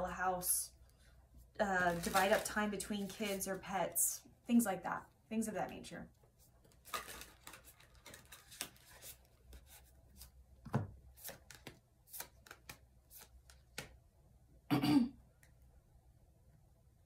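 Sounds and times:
cards being shuffled: 6.6 - 14.0.

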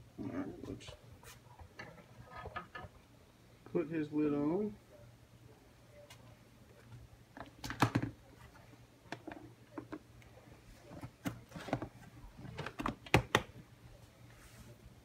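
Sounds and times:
plastic lid clicks and knocks: 12.6 - 13.5.

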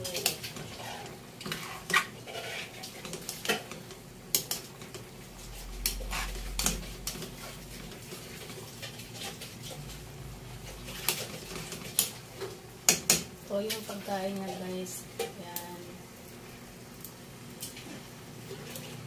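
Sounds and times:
metal utensil scraping a steel pan: 0.2 - 3.8.

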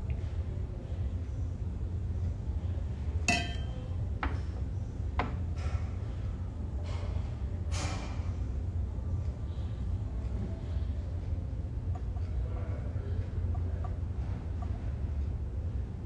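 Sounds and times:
steady low hum: 0.0 - 16.0
mug clinking on hard surface: 3.3 - 3.9.

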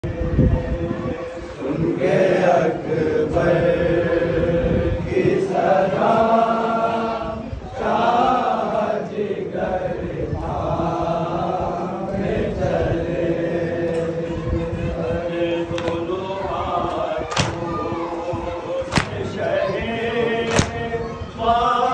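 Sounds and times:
group voices chanting: 0.8 - 21.9
hands beating on chests: 18.9 - 19.2.

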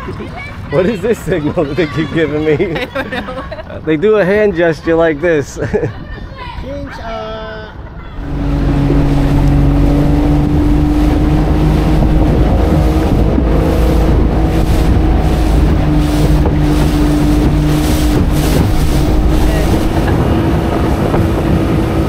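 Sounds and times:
motorboat engine running: 0.0 - 3.6, 8.2 - 22.0
water noise from hull: 0.0 - 6.5, 7.9 - 22.0
wind on microphone: 8.2 - 22.0.

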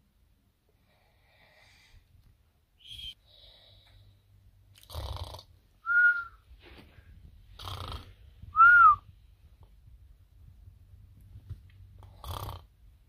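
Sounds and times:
high whistle on out-breath: 2.8 - 3.2, 5.9 - 6.4, 8.6 - 9.0
man snoring: 4.8 - 5.5, 7.6 - 8.1, 12.0 - 12.7.

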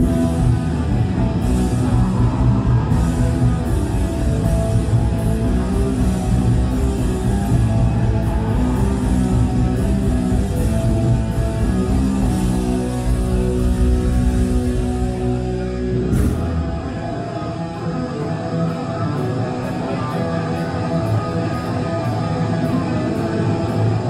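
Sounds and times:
pounding drum kit: 0.0 - 17.3
distorted electric guitars: 0.0 - 24.0.

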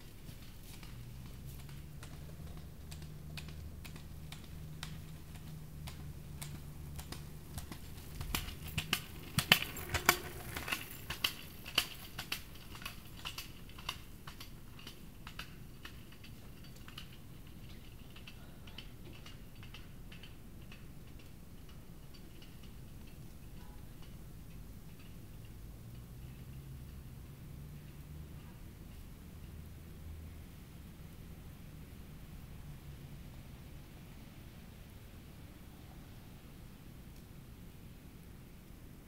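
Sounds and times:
sharp clicks and ticks: 0.7 - 17.2.

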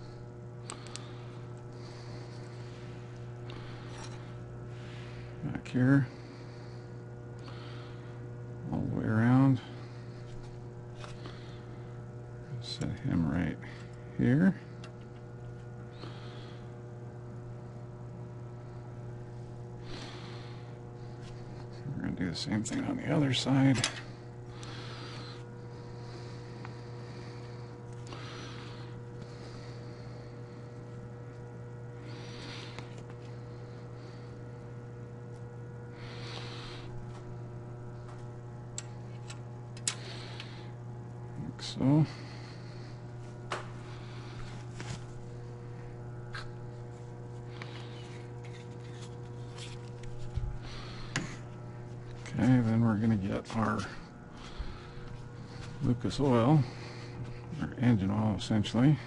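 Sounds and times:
low electrical hum: 0.0 - 59.0
soft handling rustles: 43.1 - 56.4.

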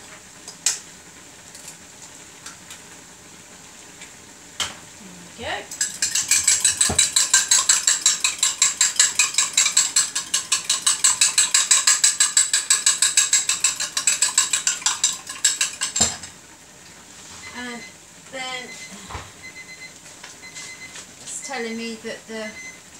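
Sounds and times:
utensil clinking against glass: 5.8 - 16.3.

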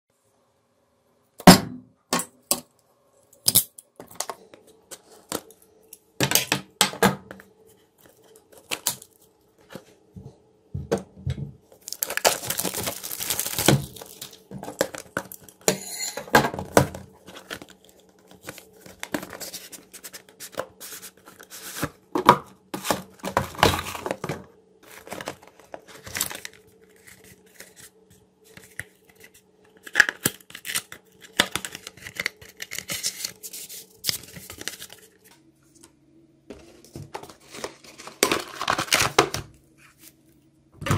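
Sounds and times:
faint steady hum: 0.1 - 40.9
cardboard tearing and crinkling: 11.8 - 15.6, 24.8 - 27.9, 37.2 - 39.4.

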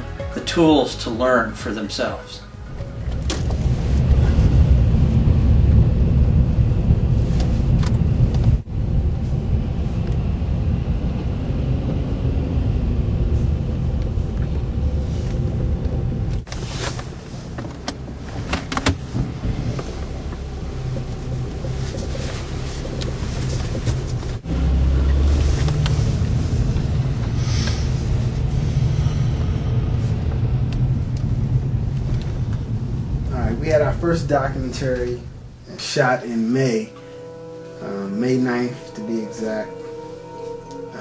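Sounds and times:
car engine and road rumble: 0.0 - 41.0
knocks and rattles in car: 17.5 - 22.2.

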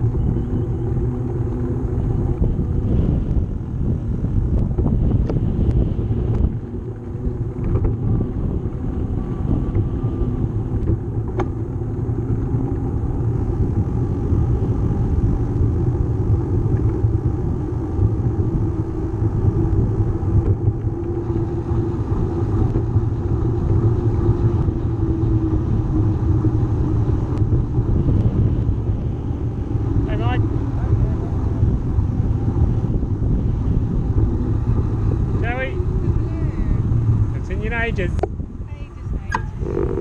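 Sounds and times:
bicycle riding rumble: 0.0 - 40.0
wind on microphone: 0.0 - 40.0.

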